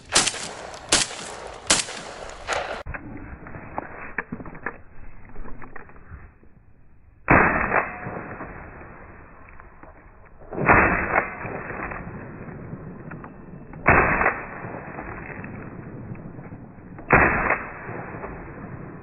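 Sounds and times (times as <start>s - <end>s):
shotgun shots: 0.0s - 2.9s, 7.3s - 9.2s, 10.5s - 12.2s, 13.8s - 16.4s, 17.0s - 19.0s.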